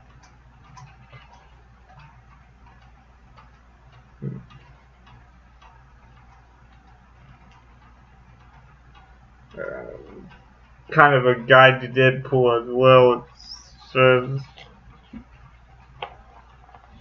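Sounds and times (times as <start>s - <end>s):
faint regular ticking: 0.0s - 17.0s
low steady hum: 0.0s - 17.0s.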